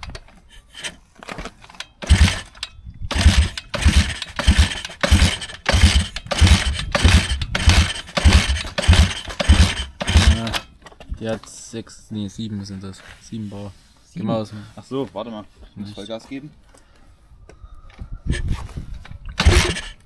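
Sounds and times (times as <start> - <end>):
engine cranking chugging: 1.7 - 10.7, 19.4 - 20.0.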